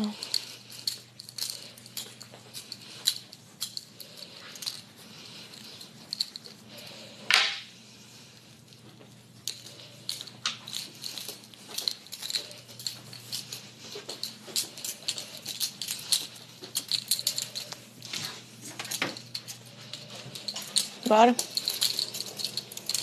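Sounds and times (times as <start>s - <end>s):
steady low hum: 0.0s - 23.0s
light clicks and rustles: 8.4s - 23.0s.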